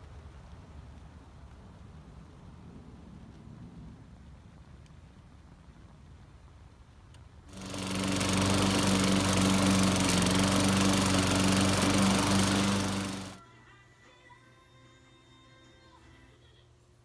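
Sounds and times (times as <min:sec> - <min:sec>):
lawn mower engine running: 0:07.5 - 0:13.4.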